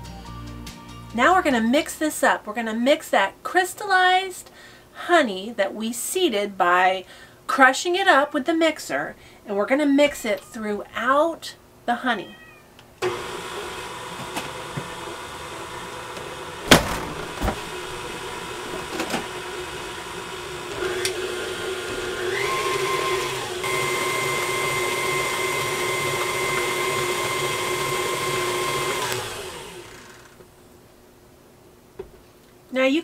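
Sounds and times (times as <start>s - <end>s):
stand mixer motor whine: 13.0s - 30.4s
sharp knocks: 16.7s - 17.7s.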